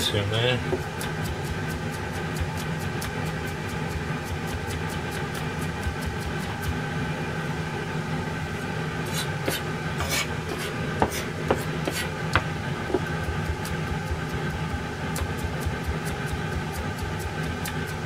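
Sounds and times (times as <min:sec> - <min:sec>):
steady hum: 0:00.0 - 0:18.0
knife chopping on cutting board: 0:00.6 - 0:06.7, 0:09.1 - 0:14.4, 0:15.1 - 0:18.0.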